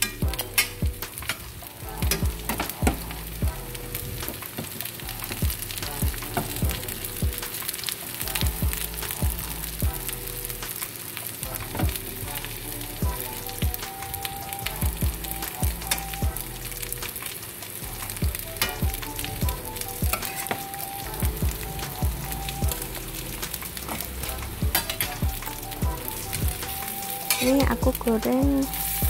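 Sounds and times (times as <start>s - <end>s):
food sizzling in hot oil: 0.0s - 29.0s.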